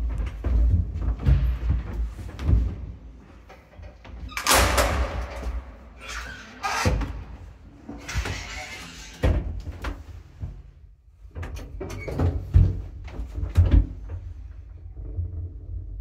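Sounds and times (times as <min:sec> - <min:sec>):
rattling clatter of doors: 0:03.4 - 0:10.1.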